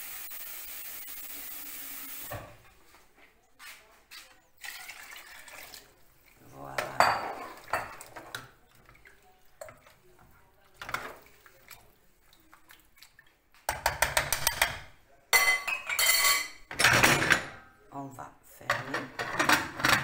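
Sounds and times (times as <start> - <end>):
pot and utensils clattering: 4.1 - 11.9, 13.7 - 17.7, 18.6 - 20.0.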